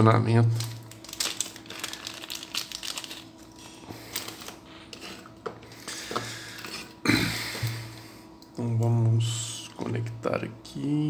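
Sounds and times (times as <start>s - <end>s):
plastic bag crinkling: 0.3s - 5.3s.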